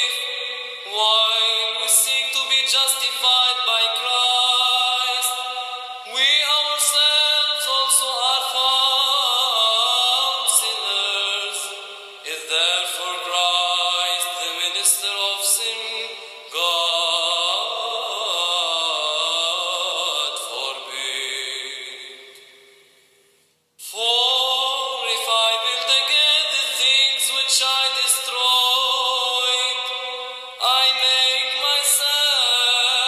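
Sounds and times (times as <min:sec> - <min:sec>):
solo voice chanting: 0:00.0 - 0:22.8, 0:23.8 - 0:33.0.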